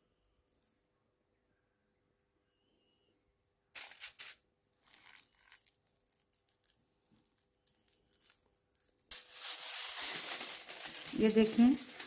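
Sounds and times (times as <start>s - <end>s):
aluminium foil crinkling: 3.8s - 12.0s.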